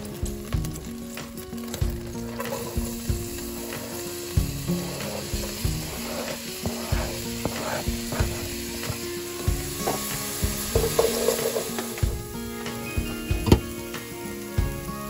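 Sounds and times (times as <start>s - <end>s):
onions sizzling in hot oil: 0.0s - 15.0s
cutting board tapping a pot: 10.7s - 11.9s, 13.4s - 13.7s.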